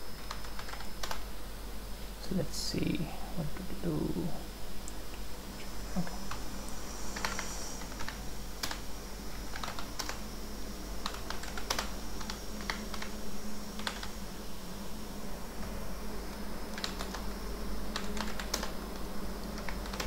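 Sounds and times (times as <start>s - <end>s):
low hum: 0.0s - 20.0s
typing on computer keyboard: 0.3s - 1.2s, 7.2s - 8.8s, 9.5s - 10.2s, 11.0s - 13.1s, 13.8s - 14.2s, 16.7s - 17.3s, 17.9s - 18.8s, 19.6s - 20.0s.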